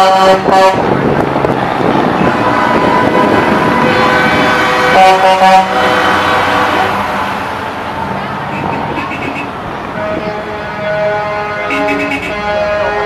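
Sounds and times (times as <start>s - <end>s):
truck air horn blast: 0.0s - 1.2s, 2.2s - 7.7s, 8.5s - 13.0s
diesel truck engines: 0.0s - 13.0s.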